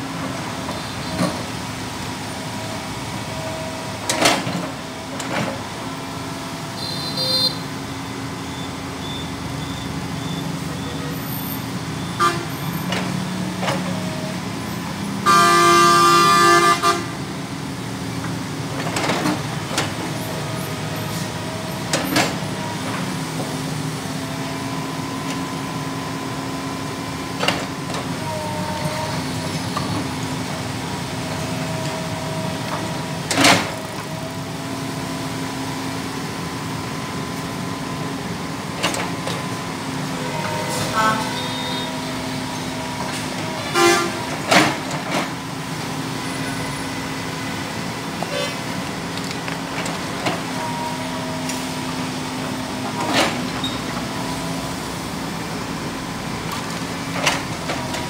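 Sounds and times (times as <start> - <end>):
excavator diesel engine running: 0.0 - 58.0
vehicle horn blast: 6.8 - 7.7, 12.2 - 12.6, 15.2 - 17.2, 40.2 - 42.1, 43.6 - 44.3.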